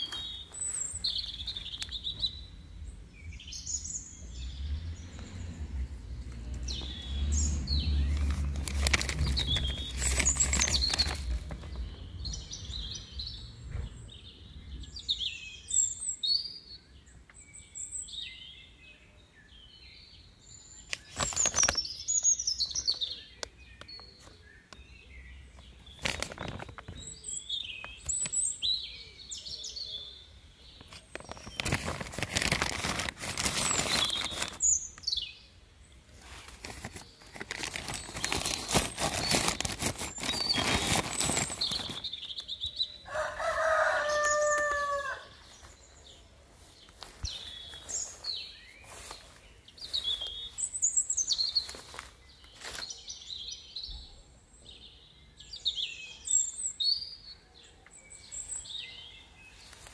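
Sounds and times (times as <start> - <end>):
small birds chirping: 0.0 - 59.9
plastic sheeting rustling: 7.9 - 11.7, 25.9 - 26.8, 31.1 - 34.8, 36.2 - 42.3.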